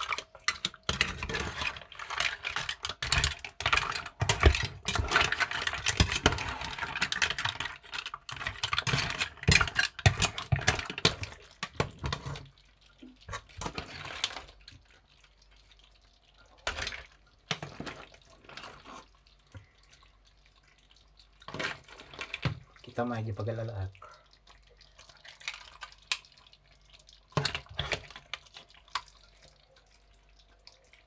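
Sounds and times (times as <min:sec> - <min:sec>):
mussel shells clattering in a pan: 0:00.0 - 0:23.5, 0:24.8 - 0:31.0
soft scraping in a pan: 0:11.1 - 0:15.9, 0:16.6 - 0:20.8.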